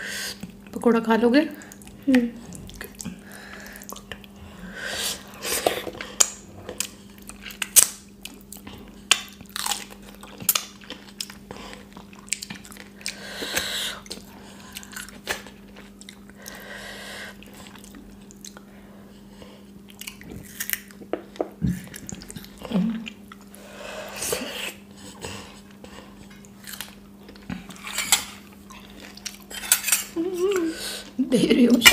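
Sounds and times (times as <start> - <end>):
wet chewing and lip smacks: 6.2 - 13.2.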